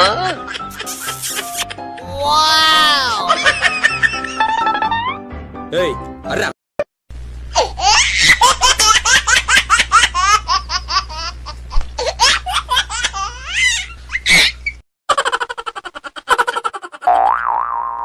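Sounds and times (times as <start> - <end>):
high-pitched laughter: 0.0 - 2.1, 3.0 - 5.2, 12.0 - 17.1
music: 0.0 - 6.5.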